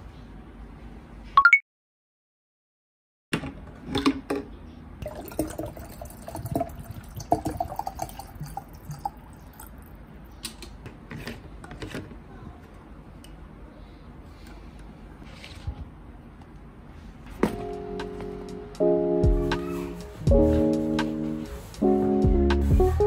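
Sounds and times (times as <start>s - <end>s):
water filling plastic bottle: 5.0s - 9.9s.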